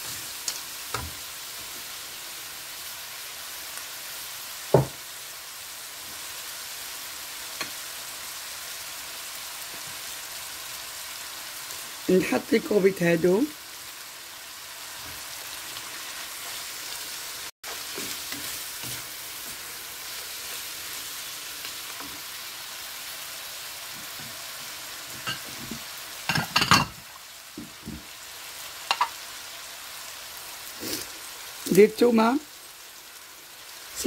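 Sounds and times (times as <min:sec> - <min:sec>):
seafood sizzling in frying pan: 0:00.0 - 0:34.0
wooden spatula stirring: 0:17.7 - 0:19.7.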